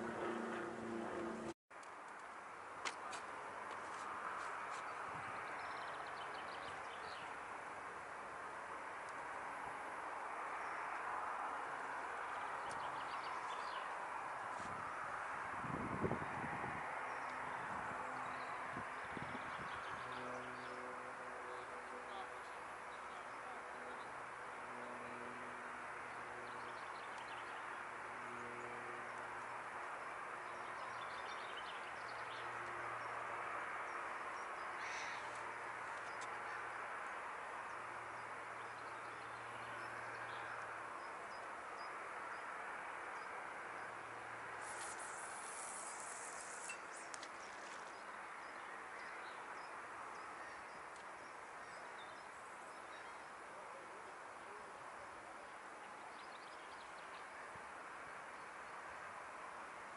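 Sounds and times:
low hum: 0.0 - 1.6
steady outdoor hiss: 0.0 - 59.9
brief high hiss: 44.6 - 46.9.

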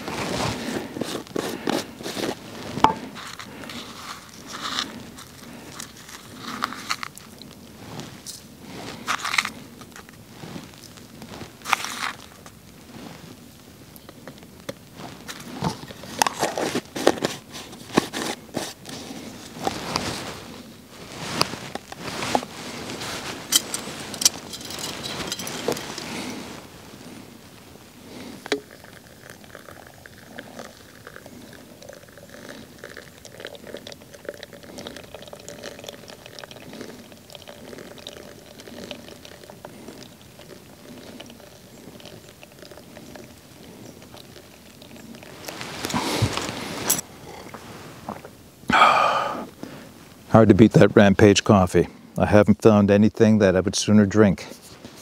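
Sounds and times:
hot water pouring into filter: 0.0 - 12.7, 28.3 - 47.0
coffee spooned from metal tin: 0.2 - 12.6, 21.8 - 26.4, 28.4 - 47.0
spoon clicks and scrapes: 1.0 - 7.4, 23.5 - 26.1, 28.4 - 43.3.

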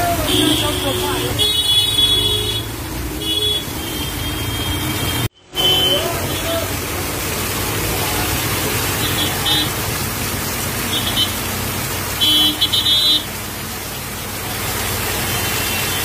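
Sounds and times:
heavy rain pouring: 0.0 - 16.0
vehicle horn tooting: 0.1 - 6.6, 12.2 - 13.3.

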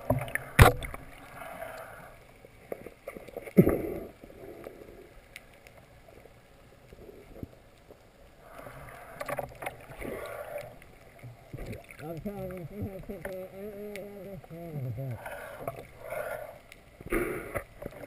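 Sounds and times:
faint clicks: 0.0 - 18.0
soft water rush: 0.0 - 18.0
underwater hiss: 0.2 - 2.3, 8.4 - 11.0, 15.0 - 18.0.

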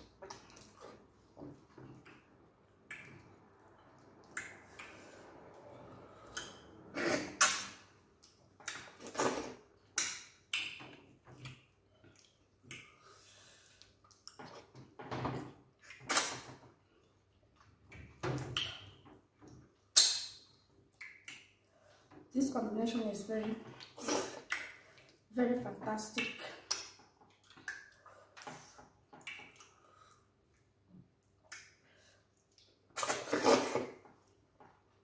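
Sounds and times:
chewing and lip smacks: 13.8 - 14.7.

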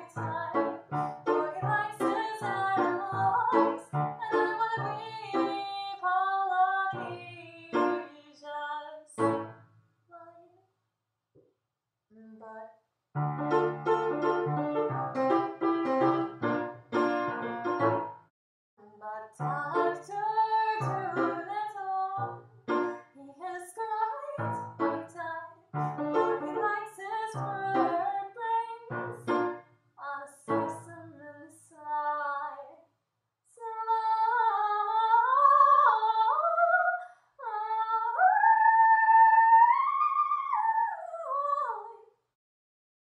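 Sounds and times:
upright piano chords: 0.0 - 5.8, 9.2 - 9.6, 13.2 - 18.2, 19.4 - 23.0, 24.4 - 25.1, 25.8 - 26.8, 27.4 - 28.2, 28.9 - 29.6
woman singing: 0.0 - 9.4, 12.1 - 12.7, 18.8 - 22.3, 23.1 - 29.3, 30.0 - 32.8, 33.6 - 42.0.

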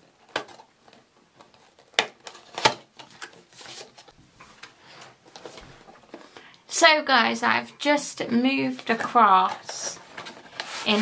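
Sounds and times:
packaging rustling: 0.1 - 6.4, 9.4 - 11.0.

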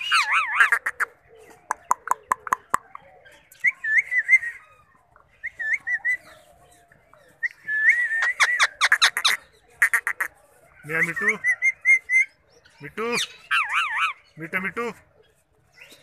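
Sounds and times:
parrot chatter: 0.0 - 3.0, 8.2 - 12.2, 13.0 - 14.3.

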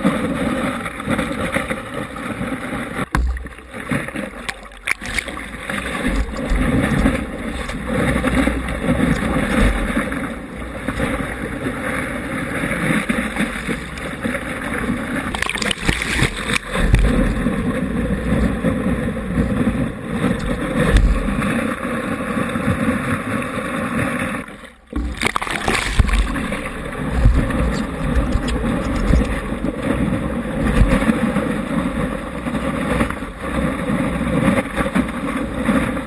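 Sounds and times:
water rushing and splashing: 0.0 - 36.0
gusty low rumbles: 5.0 - 22.9, 25.0 - 33.2.

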